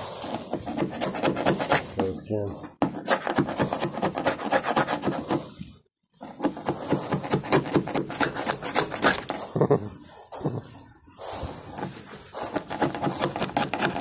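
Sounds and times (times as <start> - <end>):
chisel scraping fiberglass: 0.0 - 9.6, 11.2 - 14.0.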